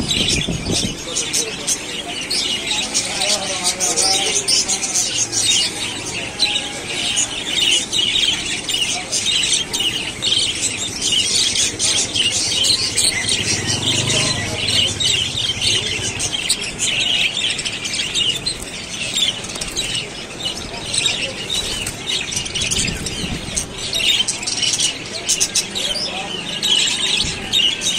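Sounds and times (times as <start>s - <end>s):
budgerigars chattering and chirping: 0.0s - 27.9s.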